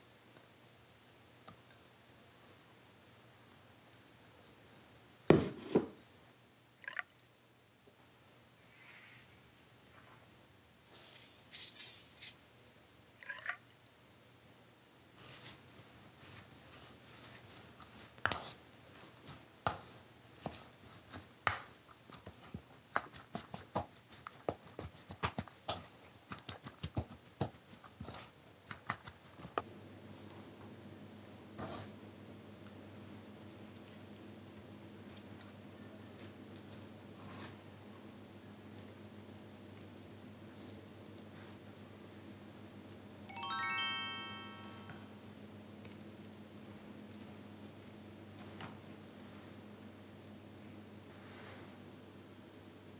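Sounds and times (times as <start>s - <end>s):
sticky rice squishing: 15.2s - 29.6s, 33.6s - 43.2s
clicks and scrapes on metal bowl: 17.2s - 18.7s, 19.7s - 23.2s.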